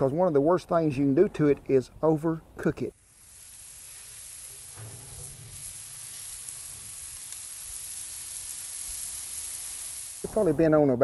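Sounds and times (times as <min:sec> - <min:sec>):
steaks sizzling on grill: 0:02.9 - 0:11.0.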